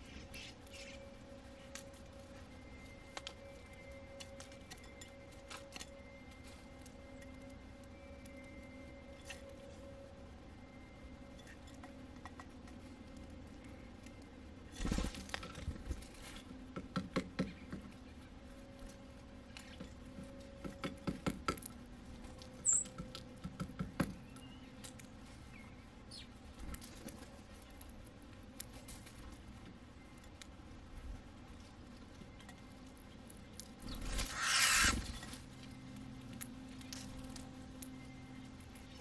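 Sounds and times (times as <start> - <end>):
bird chirp: 22.6 - 23.0, 24.2 - 24.8, 33.9 - 35.2
birds cracking seeds: 32.8 - 39.0.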